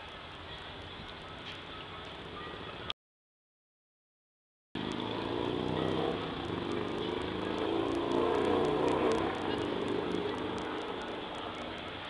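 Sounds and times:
vehicle engine running: 4.8s - 11.9s.

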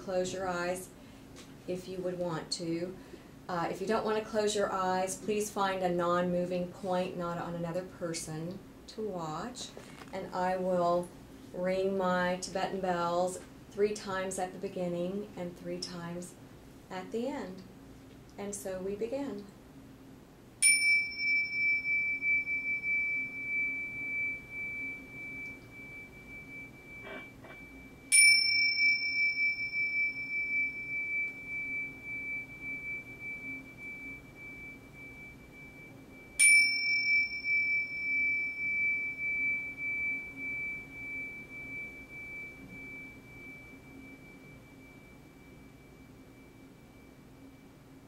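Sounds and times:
bell strike clink: 20.6s - 46.0s
bells ringing: 20.6s - 46.6s.

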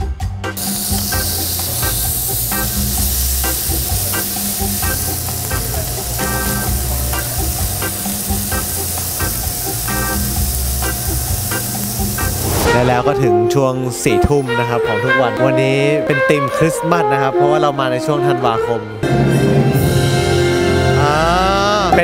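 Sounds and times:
background music with beat: 0.0s - 15.3s, 19.0s - 22.0s
meat sizzling on grill: 0.6s - 12.7s.

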